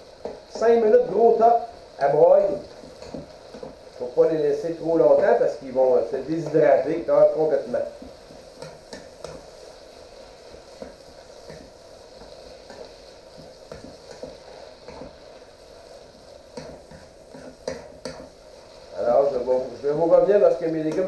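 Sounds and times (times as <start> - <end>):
vegetables sizzling in a frying pan: 0.0 - 21.0
spoon scraping and tapping pan: 2.8 - 3.8, 8.0 - 9.5, 10.8 - 15.2, 16.5 - 18.4.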